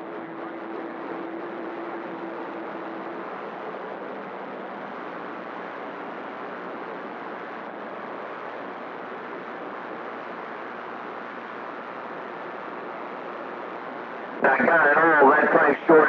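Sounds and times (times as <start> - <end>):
radio static hiss: 9.6 - 16.0.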